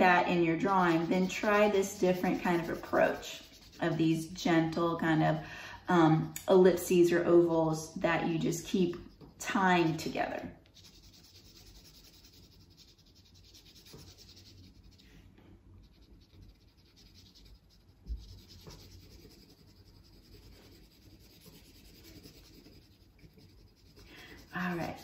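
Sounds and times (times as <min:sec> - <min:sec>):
pencil scratching on paper: 0:00.0 - 0:04.8, 0:08.4 - 0:15.2, 0:15.8 - 0:25.0.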